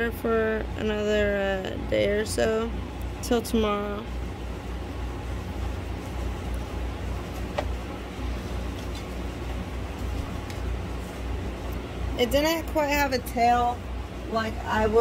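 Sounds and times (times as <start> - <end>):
machine hum with pulsing rumble: 0.0 - 15.0.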